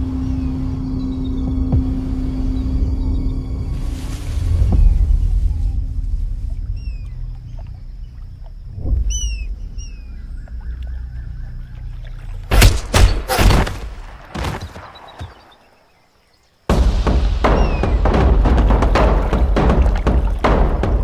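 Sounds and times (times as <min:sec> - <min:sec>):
low outdoor rumble: 0:00.0 - 0:12.9
bird chirps: 0:06.5 - 0:12.5.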